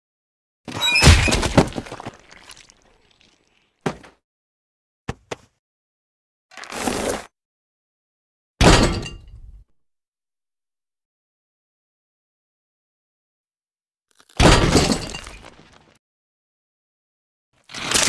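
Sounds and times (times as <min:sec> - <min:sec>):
cartoon crash with rattling: 0:00.7 - 0:01.8.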